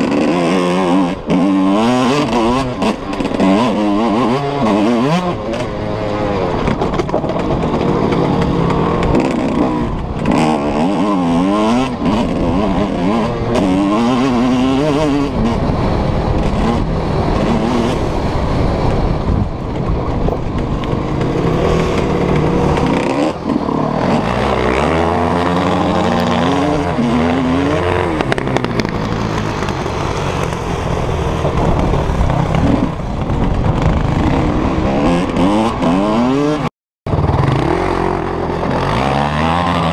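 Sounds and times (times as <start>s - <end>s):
motocross bike engine revving: 0.0s - 39.9s.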